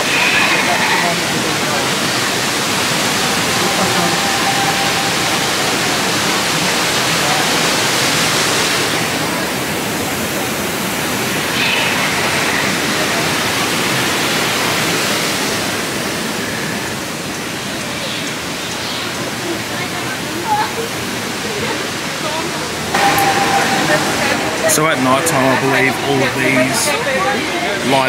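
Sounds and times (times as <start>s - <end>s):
waterfall rushing: 0.0s - 28.0s.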